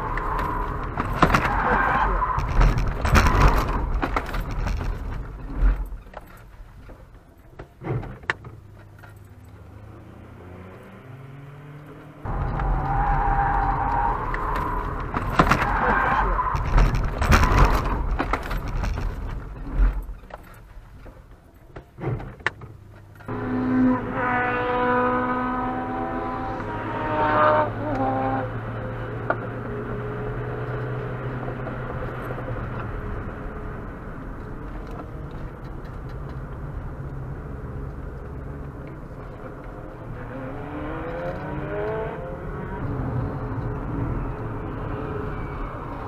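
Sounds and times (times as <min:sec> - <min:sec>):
road and tyre noise: 0:00.0 - 0:46.0
car engine revving: 0:09.5 - 0:20.2, 0:23.3 - 0:46.0.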